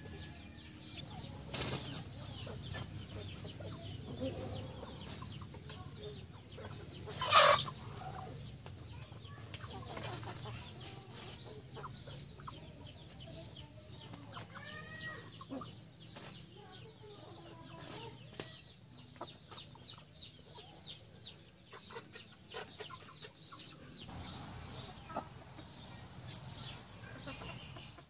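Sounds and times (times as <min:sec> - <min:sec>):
chickens clucking: 0:00.0 - 0:28.0
chicks chirping: 0:00.0 - 0:28.0.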